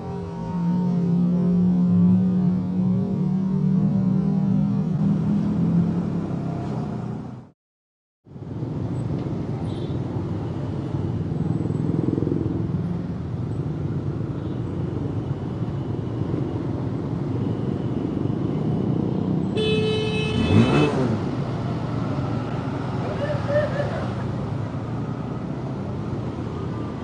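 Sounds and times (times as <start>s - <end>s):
hum of surrounding traffic: 0.0s - 7.6s, 8.2s - 27.0s
vehicle horn: 19.6s - 21.2s.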